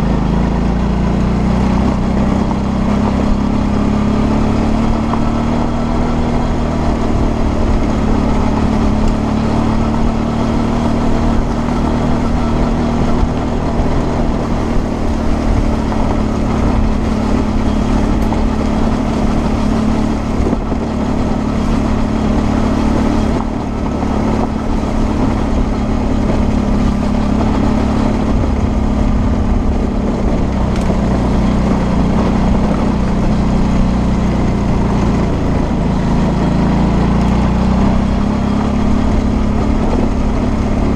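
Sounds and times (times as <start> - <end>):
motorcycle engine running: 0.0 - 40.9
steady rush of noise: 0.0 - 40.9.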